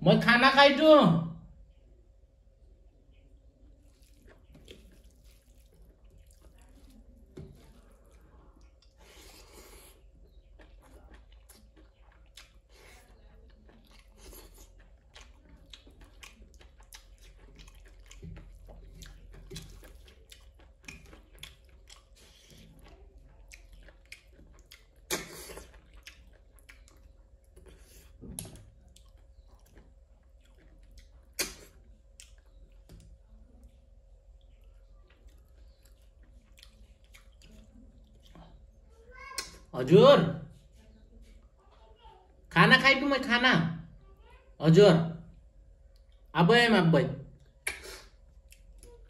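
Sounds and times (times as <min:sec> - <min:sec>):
person chewing: 0:03.8 - 0:38.8, 0:47.4 - 0:49.0
mouth clicks and smacks: 0:23.5 - 0:27.7, 0:28.3 - 0:33.1, 0:47.4 - 0:48.9.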